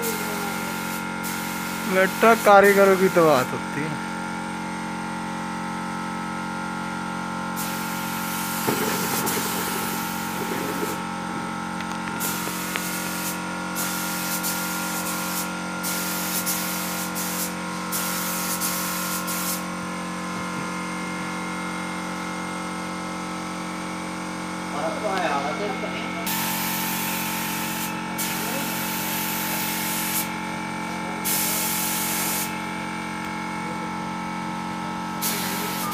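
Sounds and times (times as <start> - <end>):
spray gun hissing: 0.0 - 3.4, 7.6 - 11.2, 12.2 - 19.7, 26.2 - 30.4, 31.2 - 32.7, 35.2 - 35.9
steady machine hum: 0.0 - 35.9.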